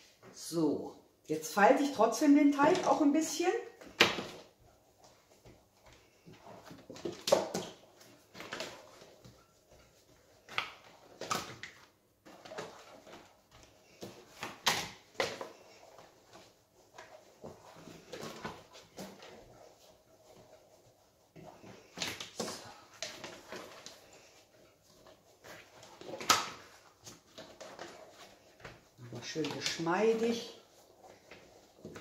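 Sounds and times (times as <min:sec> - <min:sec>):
plastic mat rustling: 0:01.7 - 0:32.0
dough slapped and pressed by hand: 0:10.0 - 0:15.9.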